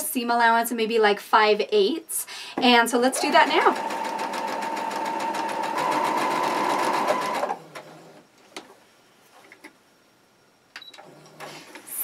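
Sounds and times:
electric sewing machine running: 3.1 - 8.2.

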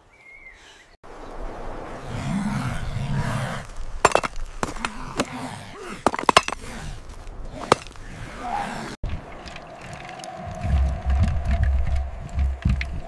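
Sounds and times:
sharp knocks and cracks: 4.1 - 5.3, 6.0 - 6.6, 7.7 - 8.0.

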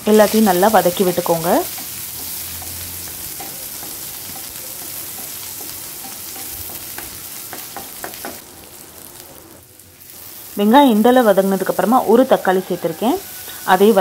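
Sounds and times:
onions sizzling in hot oil: 0.0 - 14.0.

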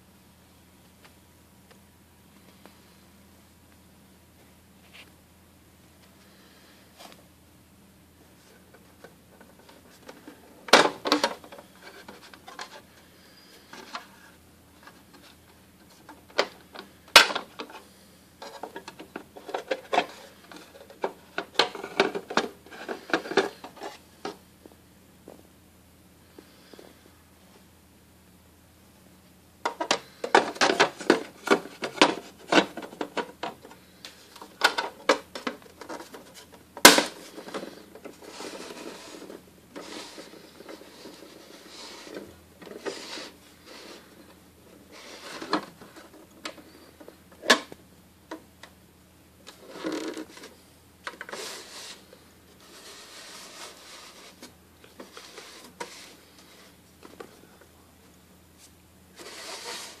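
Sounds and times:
plastic rubbing and scraping: 8.4 - 24.4, 29.6 - 47.8, 49.4 - 57.3, 58.6 - 60.0.

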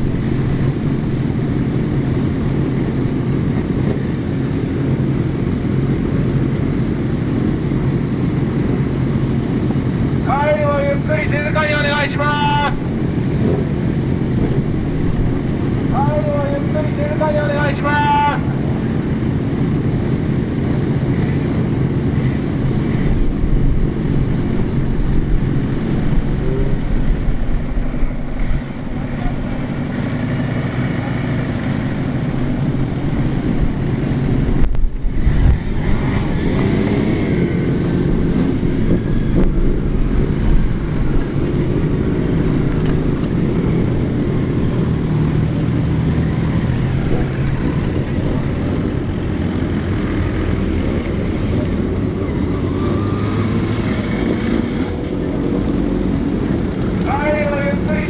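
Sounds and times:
motorcycles passing and revving: 0.0 - 58.0.

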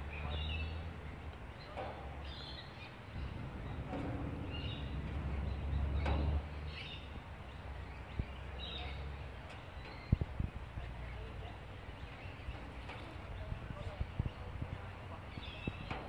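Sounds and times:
low background rumble: 0.0 - 16.0.

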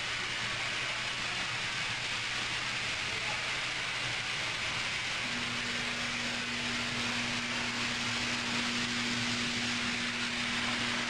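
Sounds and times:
low electrical hum: 0.0 - 11.0
steady background hiss: 0.0 - 11.0
second low steady hum: 5.2 - 11.0.

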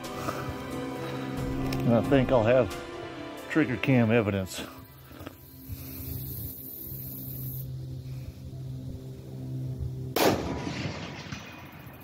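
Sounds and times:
rifle shot echoing: 10.2 - 12.0.

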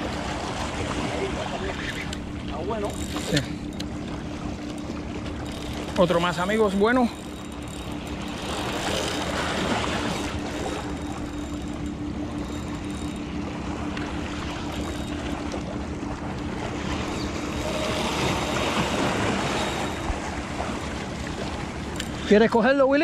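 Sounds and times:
steady low hum: 0.0 - 23.0
waves lapping: 0.0 - 23.0.

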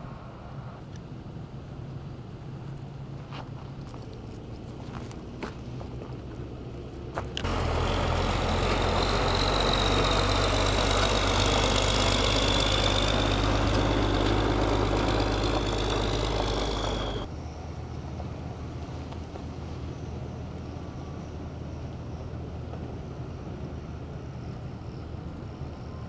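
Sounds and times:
vehicle engine droning: 5.0 - 17.3
faint high whine: 7.4 - 26.0.

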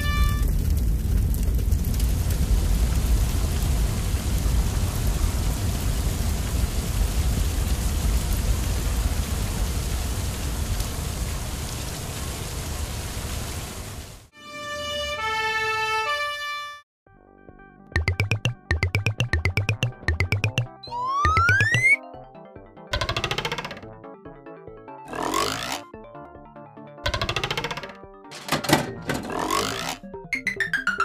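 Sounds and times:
water spraying from fire hose: 0.0 - 14.3.

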